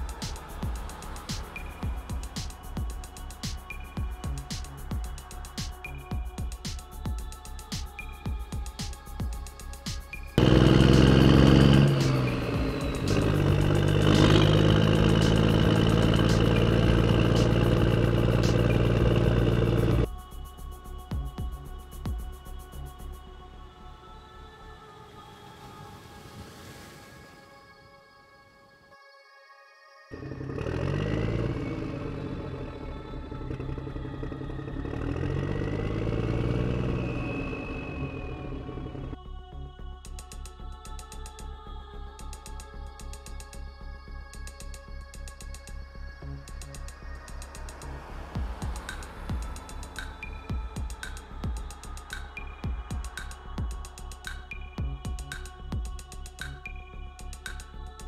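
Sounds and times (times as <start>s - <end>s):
diesel engine humming: 0.0s - 4.9s, 10.4s - 20.1s, 30.2s - 39.2s, 46.2s - 53.4s
faint sharp ticks: 48.8s - 52.5s.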